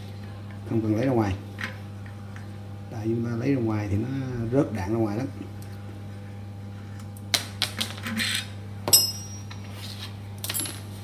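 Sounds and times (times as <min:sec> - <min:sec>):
steady low hum: 0:00.0 - 0:11.0
metal parts clinking: 0:10.4 - 0:10.8.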